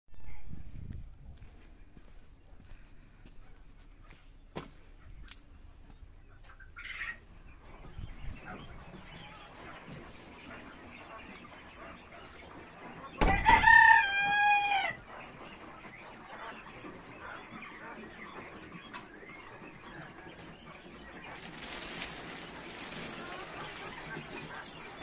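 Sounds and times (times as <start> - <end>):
quail crowing: 10.7 - 20.4.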